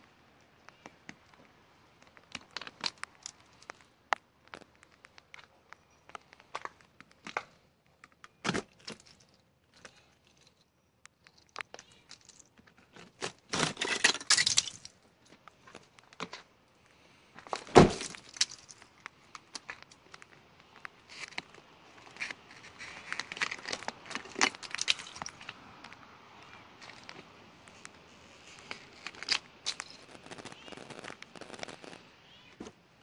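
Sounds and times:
ice cracking: 0:13.2 - 0:15.0, 0:22.1 - 0:25.6.

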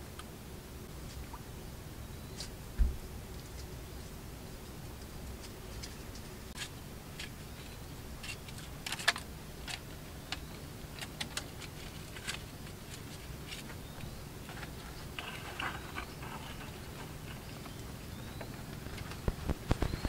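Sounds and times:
fishing line clicks and rustles: 0:05.0 - 0:20.0.

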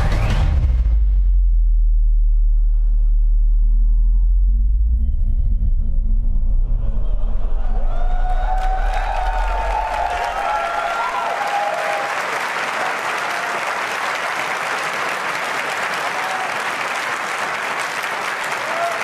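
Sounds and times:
low rumble: 0:00.0 - 0:11.0
audience applauding: 0:07.9 - 0:19.0.

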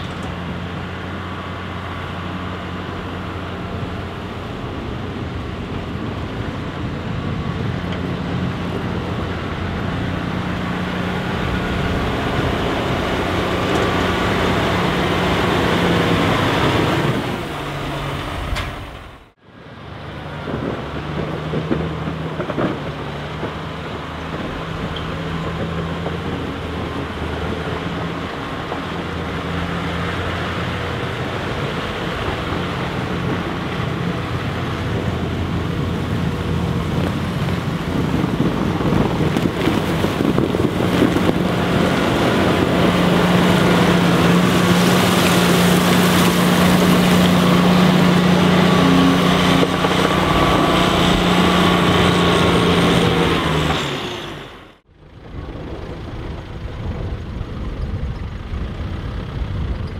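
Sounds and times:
grader diesel engine running: 0:00.0 - 0:59.9
blades scraping ice and snow: 0:36.1 - 0:54.7.

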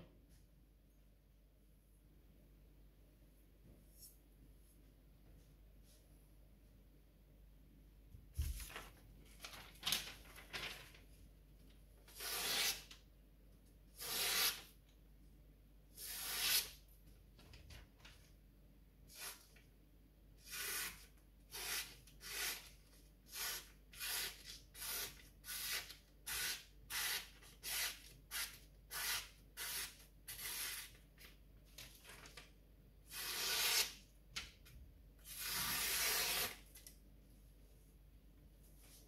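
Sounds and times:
knife slicing paper: 0:12.1 - 0:12.9, 0:14.0 - 0:14.7, 0:16.0 - 0:16.8, 0:33.1 - 0:34.0, 0:35.3 - 0:36.6.

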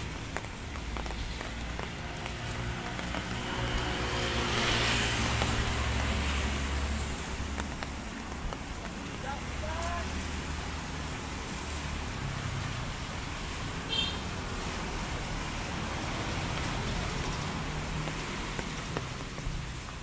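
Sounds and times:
drizzle on leaves and grass: 0:00.0 - 0:20.0
road traffic rumble: 0:00.0 - 0:20.0.

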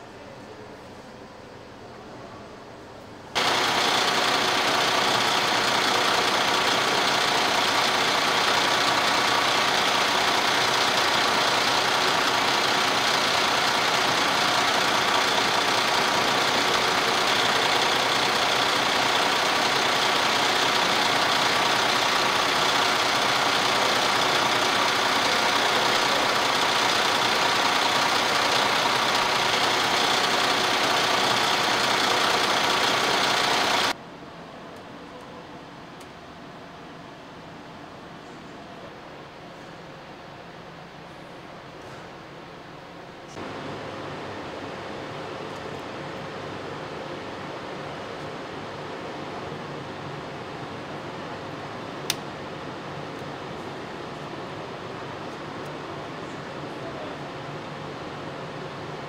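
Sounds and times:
diesel engine idling: 0:03.4 - 0:34.0, 0:43.3 - 0:59.0.

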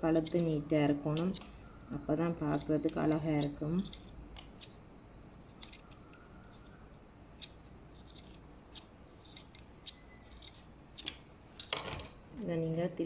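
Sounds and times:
scissors snipping cloth: 0:02.4 - 0:04.8.

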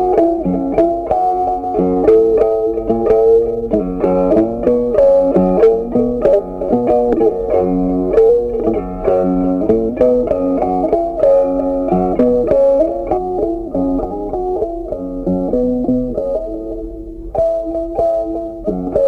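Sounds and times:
plucked guitar tune: 0:00.0 - 0:19.0.

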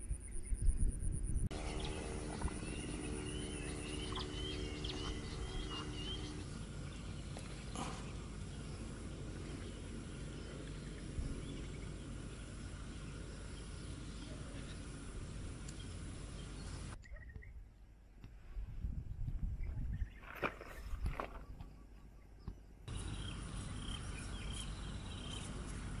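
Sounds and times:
animal low drawn-out call: 0:01.5 - 0:06.5.

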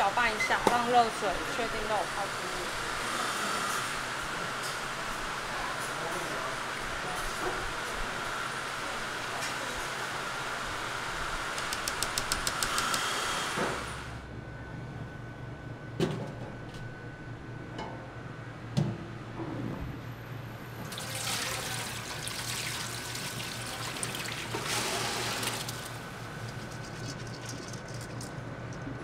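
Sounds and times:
water pouring into a colander: 0:20.8 - 0:28.4.

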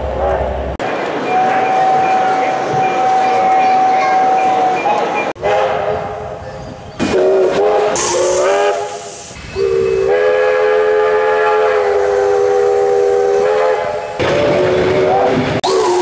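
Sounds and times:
steam hissing: 0:07.1 - 0:11.0
steam locomotive whistle blasts: 0:07.1 - 0:16.0.

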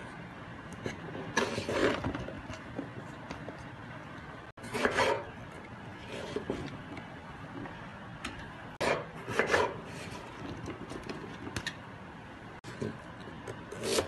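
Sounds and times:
knife cutting eggplant on board: 0:04.6 - 0:05.3, 0:08.8 - 0:09.8.

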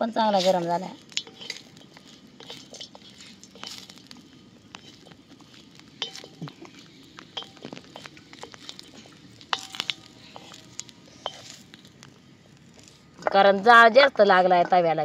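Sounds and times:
wooden spatula scraping iron pan: 0:00.2 - 0:12.0.

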